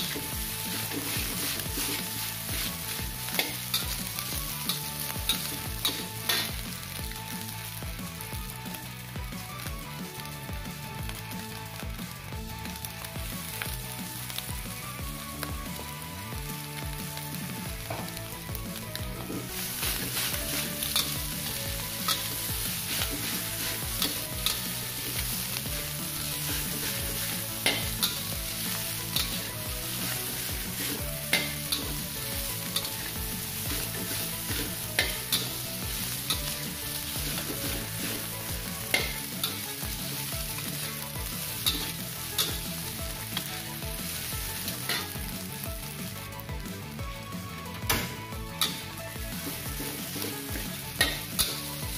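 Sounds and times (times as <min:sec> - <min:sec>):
spatula clacking on wok: 0:00.0 - 0:06.7, 0:19.0 - 0:43.6, 0:44.2 - 0:45.3, 0:47.8 - 0:51.9
rice sizzling in wok: 0:00.0 - 0:51.9.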